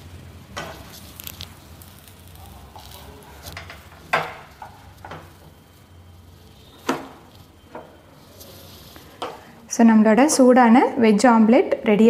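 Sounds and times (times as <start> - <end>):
wooden spatula scraping frying pan: 0.4 - 9.6.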